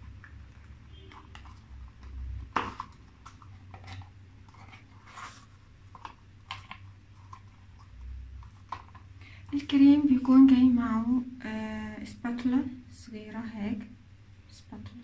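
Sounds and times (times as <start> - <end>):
cardboard packaging rustling: 0.0 - 9.2.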